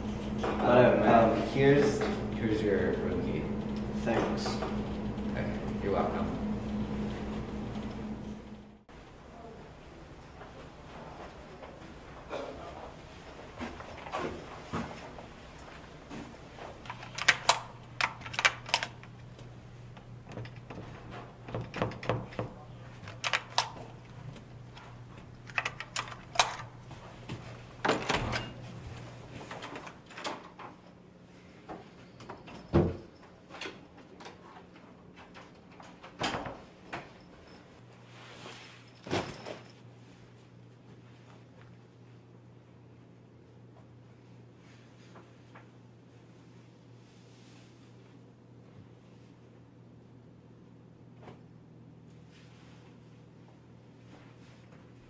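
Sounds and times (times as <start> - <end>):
door lock and handle clicks: 25.5 - 26.7.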